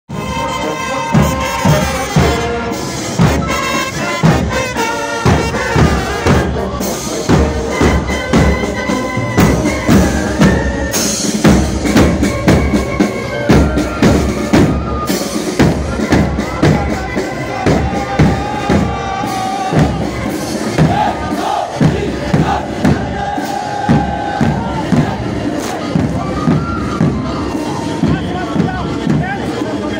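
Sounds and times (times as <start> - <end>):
brass band playing a march: 0.1 - 29.9
bass drum beat: 15.6 - 29.6.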